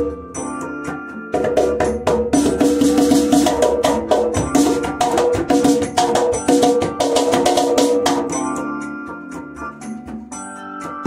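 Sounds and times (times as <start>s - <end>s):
steel tongue drum melody: 0.0s - 11.0s
hand drum sharp strikes: 1.3s - 8.8s.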